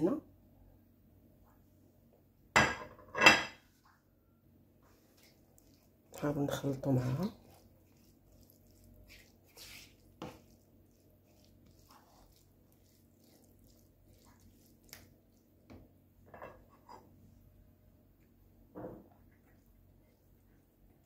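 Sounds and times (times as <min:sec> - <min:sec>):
spatula scraping a frying pan: 0:07.3 - 0:14.7.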